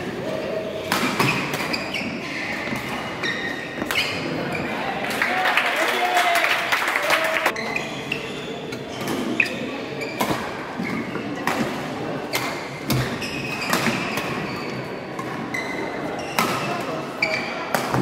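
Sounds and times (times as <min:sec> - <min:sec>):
shoes squeaking on court: 0:00.7 - 0:04.8, 0:07.5 - 0:11.5, 0:12.3 - 0:17.7.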